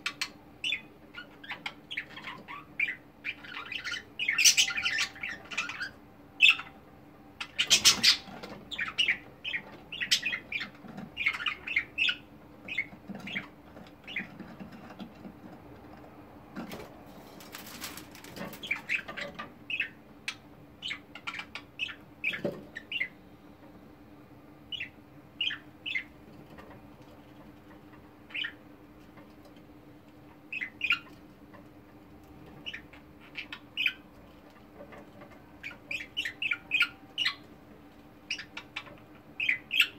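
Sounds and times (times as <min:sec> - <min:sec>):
budgerigars chirping and chattering: 0:00.0 - 0:06.8, 0:07.4 - 0:15.6, 0:17.5 - 0:23.2, 0:24.7 - 0:28.7, 0:30.3 - 0:31.7, 0:32.3 - 0:37.5, 0:38.2 - 0:39.9
faint steady hum: 0:00.0 - 0:39.9
wing flapping: 0:16.6 - 0:18.9.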